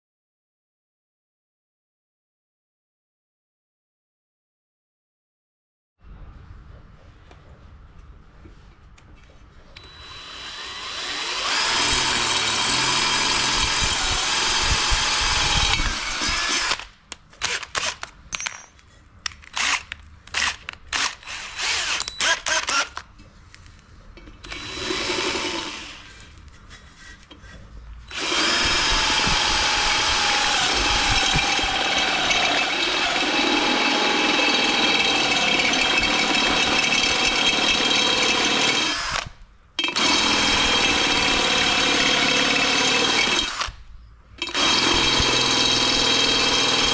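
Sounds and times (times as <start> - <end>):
cordless drill drilling metal: 9.8 - 18.1, 19.6 - 19.8, 20.4 - 23.0, 24.4 - 26.2, 28.1 - 43.8, 44.4 - 46.9.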